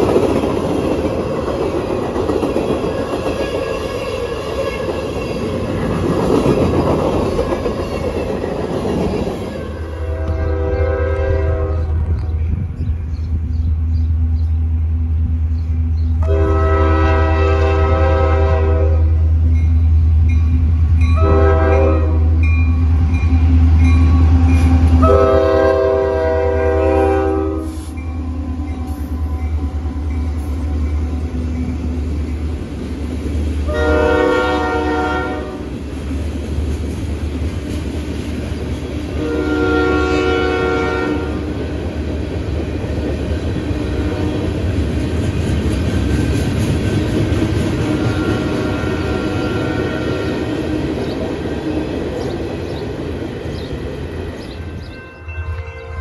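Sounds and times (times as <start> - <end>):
diesel locomotive engine rumble: 0.0 - 56.0
train air horn blasts: 9.6 - 12.4, 16.2 - 19.2, 21.2 - 22.5, 24.3 - 31.4, 33.7 - 35.7, 39.1 - 41.5, 47.8 - 50.4.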